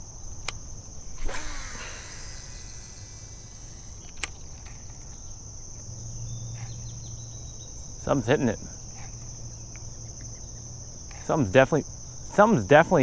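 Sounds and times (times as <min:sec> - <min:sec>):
crickets buzzing: 0:00.0 - 0:13.0
sharp click: 0:00.4 - 0:00.6, 0:03.8 - 0:05.2
reel spool whirring: 0:01.1 - 0:05.2
fishing rod swish: 0:01.2 - 0:03.3.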